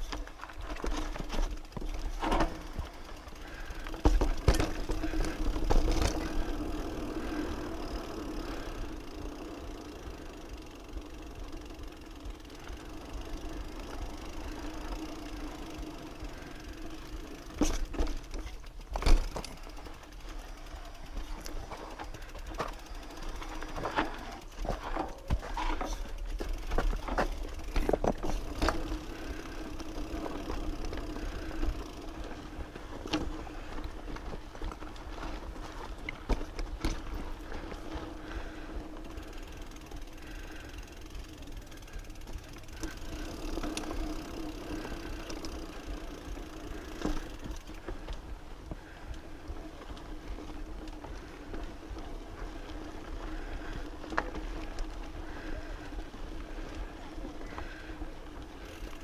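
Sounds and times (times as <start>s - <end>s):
bike rattling over rocks: 0.0s - 59.0s
mountain bike rolling hum: 0.0s - 59.0s.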